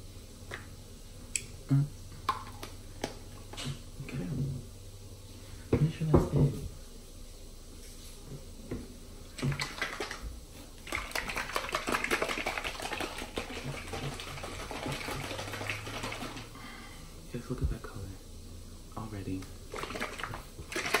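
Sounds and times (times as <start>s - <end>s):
liquid sloshing in plastic bottle: 10.8s - 16.6s, 19.7s - 21.0s.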